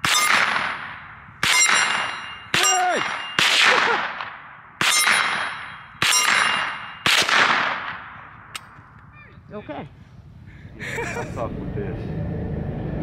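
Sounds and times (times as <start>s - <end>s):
rifle shots: 0.0s - 8.5s
metallic ringing: 1.4s - 3.5s, 4.8s - 7.1s.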